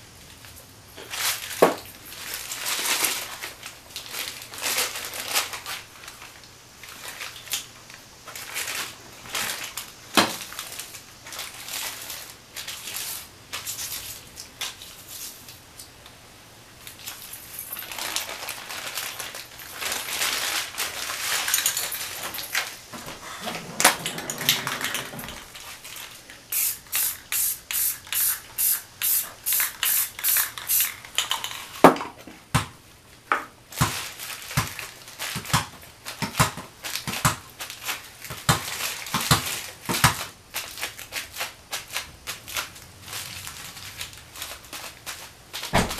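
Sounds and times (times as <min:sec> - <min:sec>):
newspaper crinkling: 0:01.0 - 0:15.5, 0:16.8 - 0:26.5, 0:33.7 - 0:45.9
spray can short strokes: 0:26.5 - 0:30.9.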